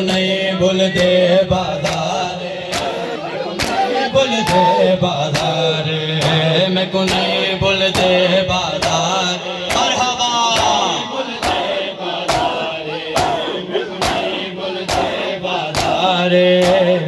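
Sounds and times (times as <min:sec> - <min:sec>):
men chanting a lament: 0:00.0 - 0:17.0
hands slapping chests: 0:01.8 - 0:03.0, 0:03.6 - 0:04.7, 0:09.7 - 0:10.0, 0:11.4 - 0:11.7, 0:12.3 - 0:16.9.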